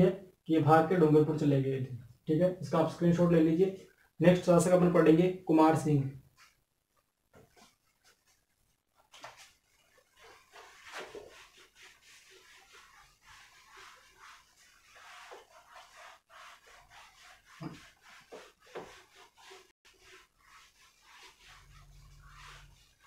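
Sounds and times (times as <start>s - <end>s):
eraser scrubbing whiteboard: 7.4s - 23.0s.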